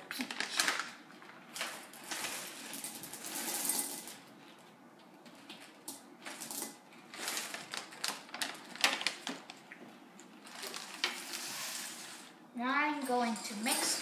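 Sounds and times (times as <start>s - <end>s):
plastic bags crinkling: 0.0s - 3.4s, 6.2s - 9.8s, 10.4s - 11.8s
jelly beans dropping into bowl: 1.6s - 4.3s.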